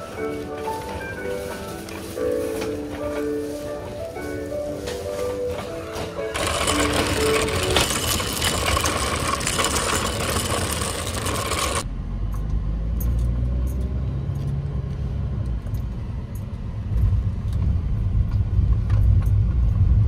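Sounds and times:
shopping cart rattling over pavement: 0:00.0 - 0:11.9
car rumble inside cabin: 0:11.8 - 0:20.0.

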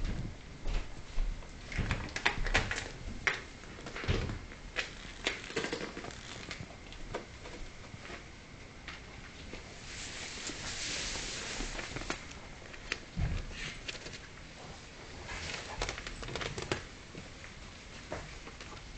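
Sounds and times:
shoes dragged across wooden floor: 0:09.8 - 0:12.3.

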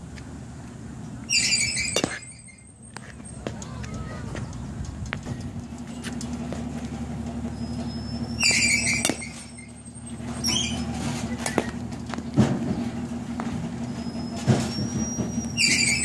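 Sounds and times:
high-pitched squeal: 0:01.3 - 0:04.3, 0:07.4 - 0:11.8, 0:13.8 - 0:16.0
bat hitting ball: 0:01.6 - 0:03.9, 0:08.4 - 0:09.6, 0:11.3 - 0:13.6.

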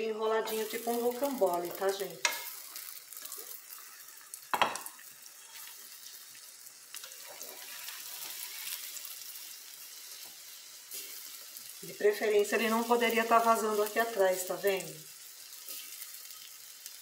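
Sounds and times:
omelette sizzling in a pan: 0:00.4 - 0:17.0
utensils scraping a pan: 0:07.0 - 0:08.9.

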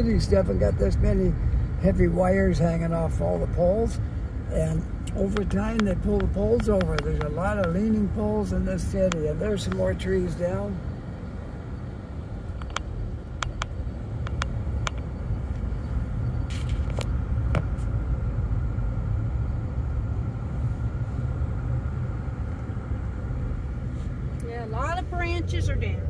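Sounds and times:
road rumble inside car: 0:00.0 - 0:26.0
light clicks and ticks: 0:05.0 - 0:07.8, 0:09.0 - 0:09.9, 0:12.6 - 0:15.6.

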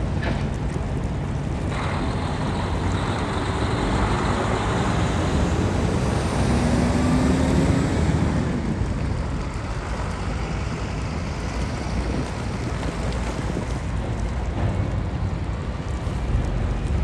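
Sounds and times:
heavy trucks passing: 0:00.0 - 0:17.0.

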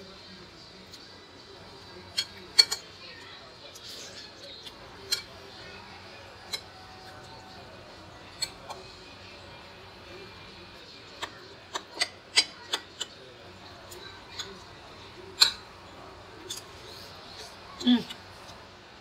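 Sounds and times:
cutlery clinking on a plate: 0:02.1 - 0:03.0, 0:03.7 - 0:05.5, 0:06.4 - 0:07.4, 0:08.2 - 0:09.0, 0:11.1 - 0:13.2, 0:15.3 - 0:15.7, 0:16.4 - 0:16.8.

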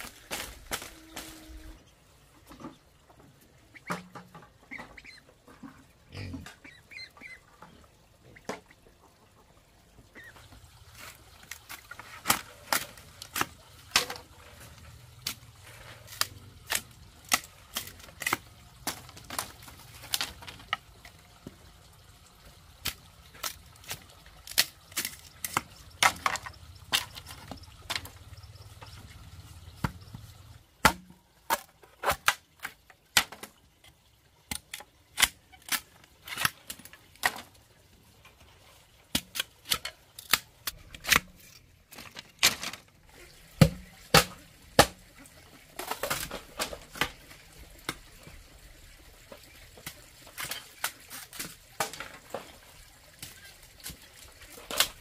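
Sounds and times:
knife chopping bamboo: 0:30.8 - 0:32.4, 0:43.6 - 0:45.0.

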